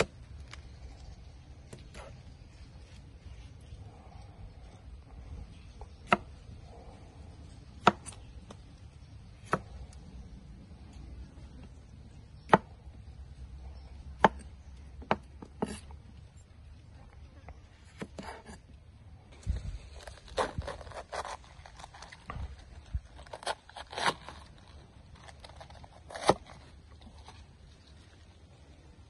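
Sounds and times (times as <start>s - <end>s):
cleaver chopping on wooden block: 7.8s - 8.2s, 9.4s - 9.7s, 12.4s - 12.8s, 14.2s - 15.9s.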